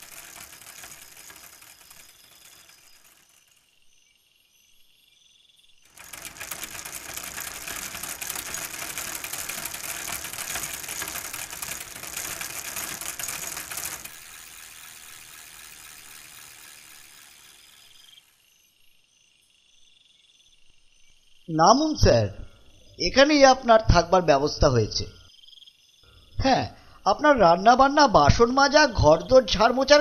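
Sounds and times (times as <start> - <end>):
rickshaw mechanical clatter: 0.0 - 3.8, 5.9 - 18.4
night insects chirping: 0.0 - 30.0
frogs croaking: 14.2 - 23.2, 25.1 - 27.0.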